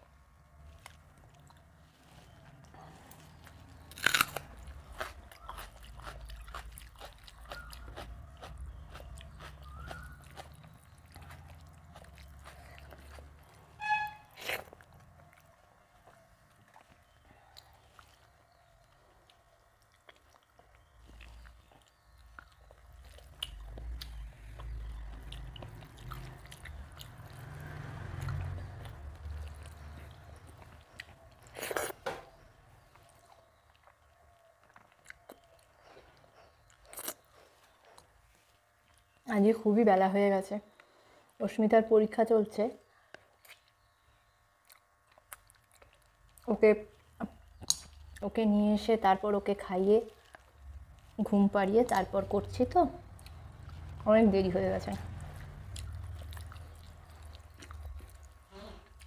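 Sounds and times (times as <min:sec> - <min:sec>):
chewing and mouth sounds: 0:00.6 - 0:39.2, 0:43.1 - 0:48.4, 0:49.4 - 0:59.0
sharp crunches: 0:03.4 - 0:10.5.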